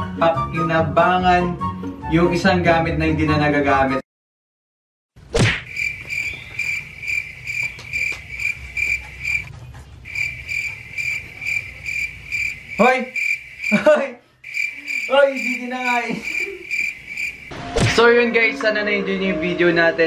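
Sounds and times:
cricket chirping: 0:05.6 - 0:09.5, 0:10.1 - 0:17.6.

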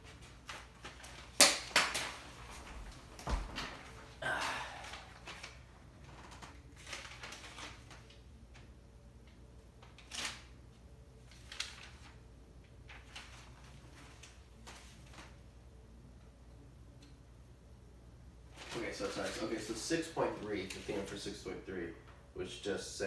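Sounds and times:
paper rustling: 0:00.0 - 0:04.2, 0:04.8 - 0:08.7, 0:09.8 - 0:10.6, 0:11.2 - 0:15.4, 0:18.5 - 0:21.4
faint low hum: 0:02.0 - 0:23.0.

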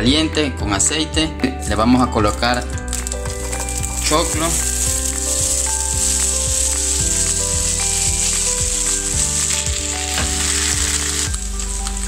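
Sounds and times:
background music with beat: 0:00.0 - 0:12.0
corn sizzling in hot oil: 0:02.9 - 0:12.0.

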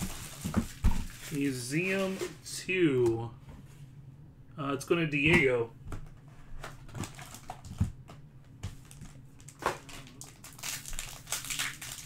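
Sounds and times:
foil wrapper crinkling: 0:00.0 - 0:02.3, 0:06.9 - 0:07.8, 0:08.8 - 0:12.0.

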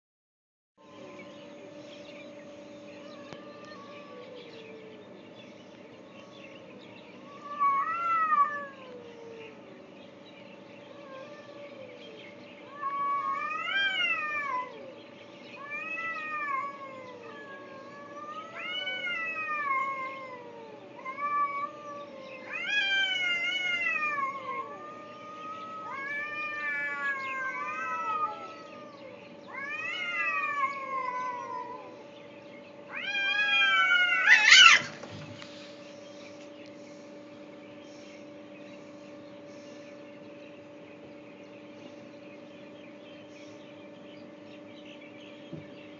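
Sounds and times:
steady low hum: 0:00.8 - 0:45.9
cats yowling in a fight: 0:02.9 - 0:05.0, 0:06.1 - 0:09.6, 0:10.8 - 0:32.2, 0:32.8 - 0:35.4.

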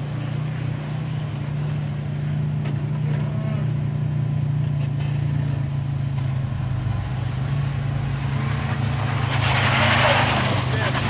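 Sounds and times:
engine pulling at low revs: 0:00.0 - 0:11.0
hiss: 0:08.4 - 0:11.0.

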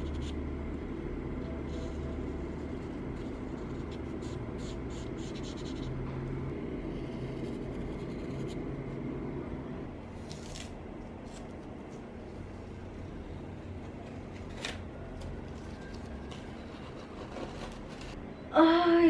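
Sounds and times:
steady low hum: 0:00.0 - 0:19.0
marker scratching on paper: 0:01.4 - 0:06.1.

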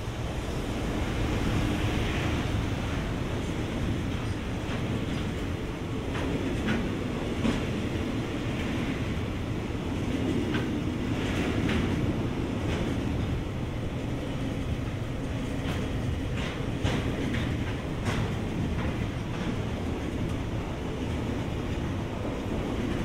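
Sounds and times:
train wheels rumbling on rail: 0:00.0 - 0:23.0
wheels clicking over rail joints: 0:10.0 - 0:23.0.

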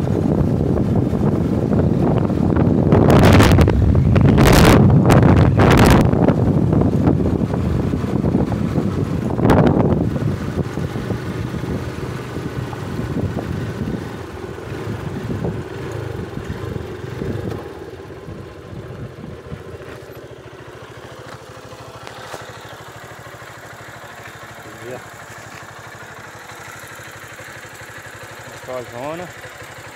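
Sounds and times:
small motorcycle engine running: 0:00.0 - 0:29.9.

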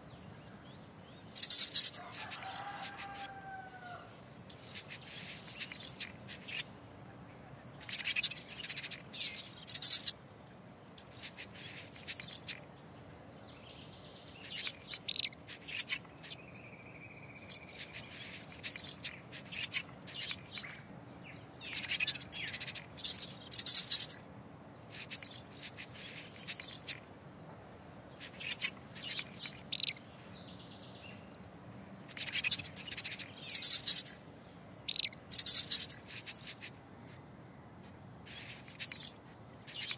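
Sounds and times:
mouse squeaking: 0:01.3 - 0:03.4, 0:04.5 - 0:06.6, 0:07.8 - 0:10.1, 0:11.0 - 0:12.6, 0:14.4 - 0:16.4, 0:17.5 - 0:20.8, 0:21.6 - 0:24.2, 0:24.9 - 0:27.0, 0:28.2 - 0:30.0, 0:32.1 - 0:34.2, 0:34.8 - 0:36.8, 0:38.3 - 0:39.9
mouse scurrying: 0:01.4 - 0:03.4, 0:04.5 - 0:06.6, 0:07.8 - 0:10.1, 0:11.0 - 0:12.6, 0:17.5 - 0:20.7, 0:21.7 - 0:24.2, 0:25.0 - 0:27.0, 0:28.2 - 0:30.0, 0:32.1 - 0:34.2, 0:34.9 - 0:36.7, 0:38.3 - 0:39.9.

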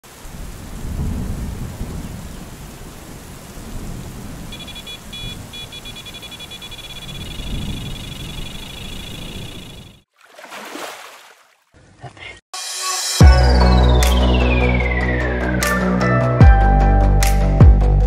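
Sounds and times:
steady rain: 0:00.0 - 0:08.6
thunder rumbling: 0:00.2 - 0:10.0
rapid high-pitched pulsing tone: 0:04.5 - 0:10.0.

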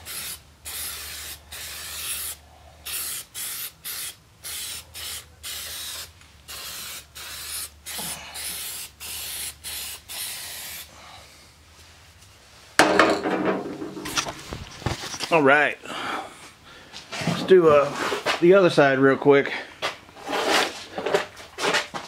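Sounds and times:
spray can hissing: 0:00.0 - 0:10.9
loud knock and rustle: 0:12.8 - 0:15.2.

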